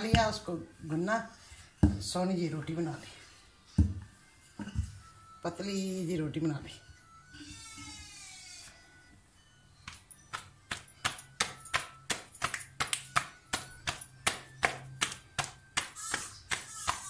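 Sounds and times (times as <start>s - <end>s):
hands slapping dough: 9.8s - 17.0s.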